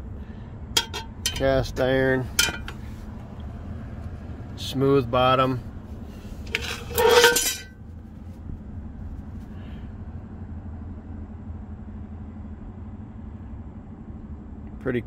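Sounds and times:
steady low hum: 0.0 - 15.0
cast iron pot clanking: 0.8 - 1.7, 2.3 - 2.9, 6.4 - 7.7.

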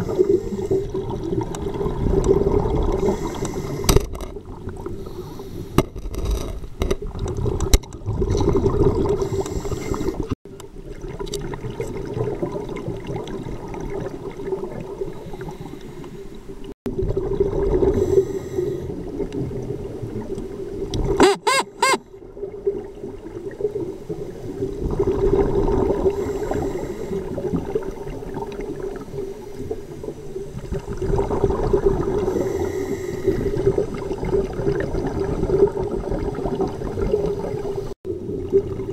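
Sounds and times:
exhaled bubbles gurgling underwater: 0.0 - 5.8, 7.0 - 21.2, 22.1 - 38.9
quick pitched tones: 21.2 - 22.0.

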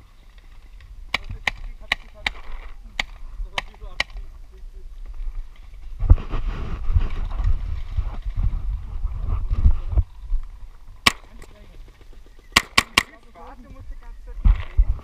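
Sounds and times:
wind buffeting microphone: 0.7 - 15.0
sharp crack: 1.1 - 4.2, 11.0 - 11.6, 12.6 - 13.2.

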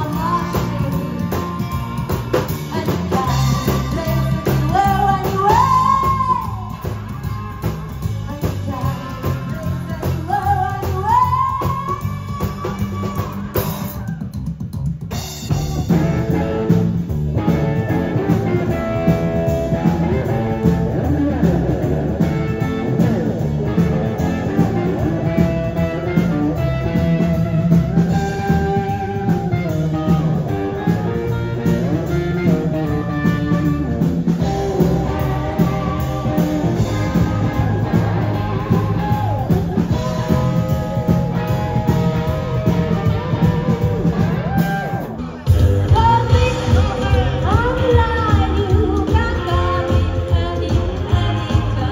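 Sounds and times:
woman singing: 0.0 - 13.7, 34.8 - 39.3, 45.8 - 51.9
drums: 0.0 - 51.9
electric guitar: 0.0 - 51.9
upright bass: 0.0 - 51.9.

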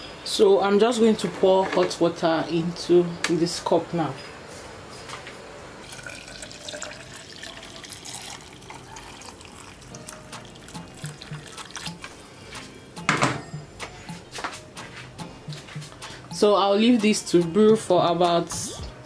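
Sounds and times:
water pouring into plastic cup: 5.8 - 12.0.

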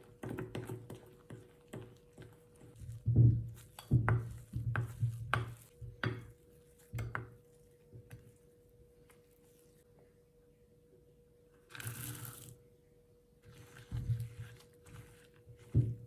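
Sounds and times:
spoon scraping dough in glass bowl: 13.4 - 16.0.

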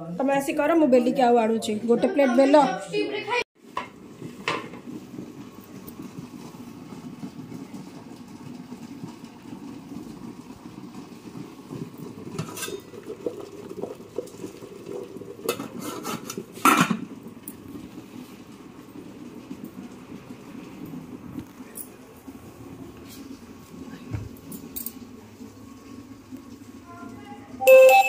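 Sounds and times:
dishes and utensils clinking: 12.4 - 13.0.

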